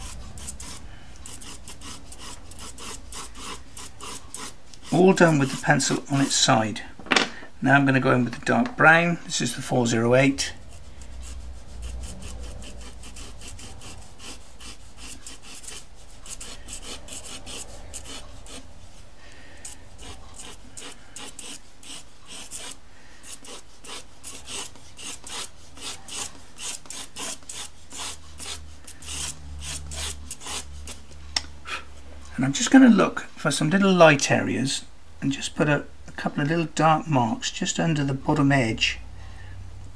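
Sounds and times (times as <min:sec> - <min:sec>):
pastel pencil scratching paper: 0:00.0 - 0:06.3, 0:10.6 - 0:19.0, 0:19.6 - 0:31.0.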